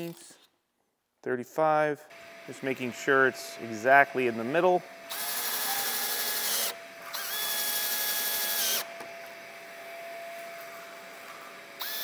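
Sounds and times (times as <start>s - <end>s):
cordless drill whine: 4.2s - 12.0s.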